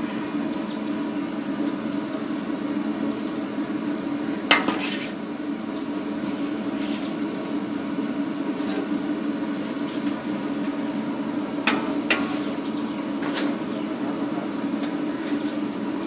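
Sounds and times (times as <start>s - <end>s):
oil frying with hiss: 0.0s - 16.0s.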